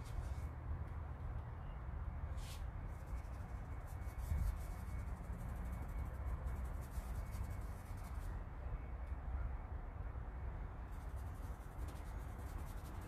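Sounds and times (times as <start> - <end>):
steady low rumble: 0.0 - 13.0
drawing tool scratching on fabric: 11.0 - 13.0.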